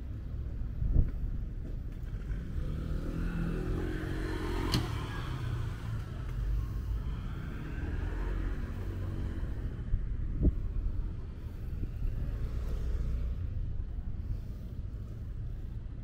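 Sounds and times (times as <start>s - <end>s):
low street rumble: 0.0s - 16.0s
car passing: 2.0s - 15.8s.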